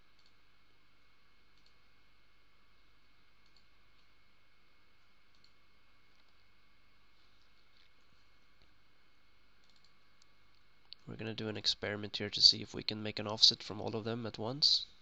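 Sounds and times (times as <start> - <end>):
low steady hiss: 0.0 - 15.0
faint computer mouse clicks: 9.6 - 10.0.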